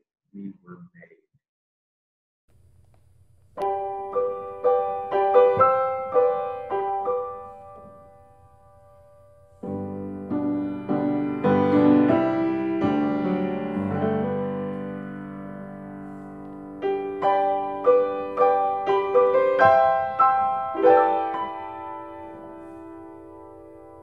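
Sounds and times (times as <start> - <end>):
grand piano notes: 3.6 - 24.0
low piano chords: 3.6 - 24.0.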